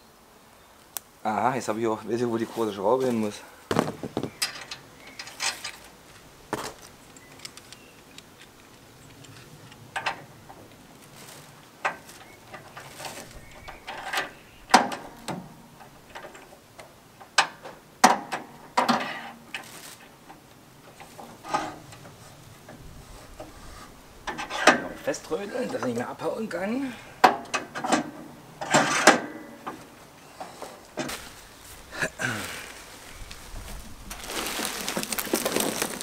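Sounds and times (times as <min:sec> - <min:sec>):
metal bolt clicks and knocks: 0:27.2 - 0:29.9.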